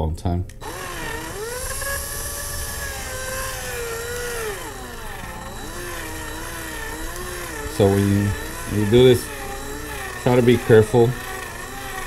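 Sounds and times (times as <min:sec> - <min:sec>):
power drill whining: 0:00.6 - 0:12.0.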